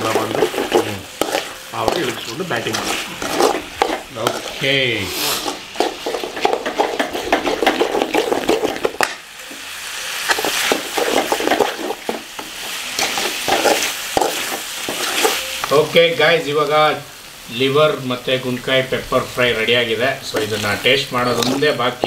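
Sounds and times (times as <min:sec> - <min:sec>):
spoon scraping a metal pan: 0:00.0 - 0:15.7
food sizzling: 0:00.0 - 0:22.0.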